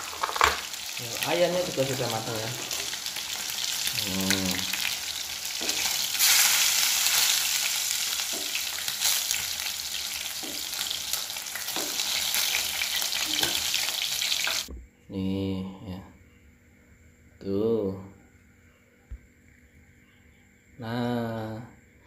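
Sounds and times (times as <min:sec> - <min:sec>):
chicken frying in hot oil: 0:00.0 - 0:14.7.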